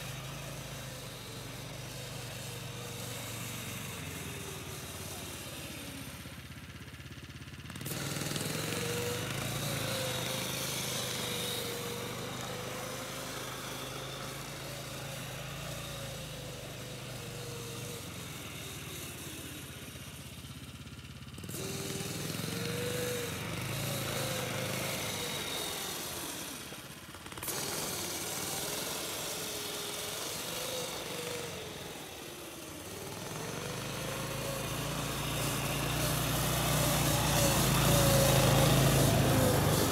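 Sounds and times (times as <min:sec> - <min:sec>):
snowmobile engine revving: 0:00.0 - 0:20.4, 0:21.2 - 0:39.9
snowmobile engine idling: 0:00.0 - 0:39.9.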